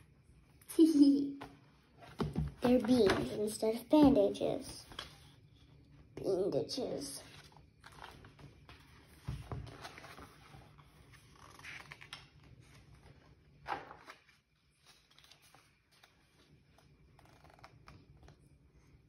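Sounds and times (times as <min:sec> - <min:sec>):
paper pages rustling: 0:02.0 - 0:05.4, 0:07.2 - 0:18.7.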